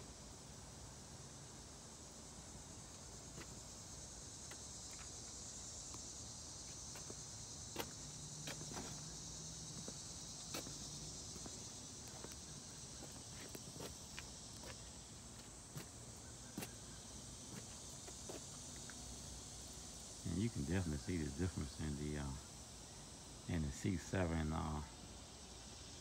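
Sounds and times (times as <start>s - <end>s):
high-pitched insect chorus: 0.0s - 26.0s
footsteps on asphalt: 6.7s - 16.0s.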